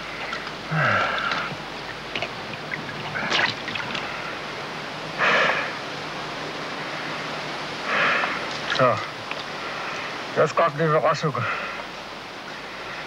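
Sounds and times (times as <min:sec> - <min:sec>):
bubbling: 0:00.2 - 0:04.2.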